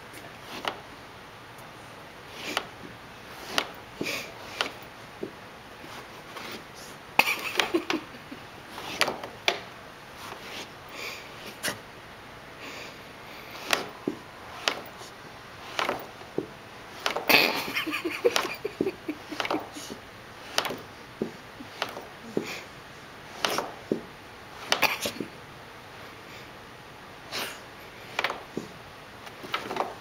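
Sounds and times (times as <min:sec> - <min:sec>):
dog scratching at carpet: 0:10.2 - 0:10.8.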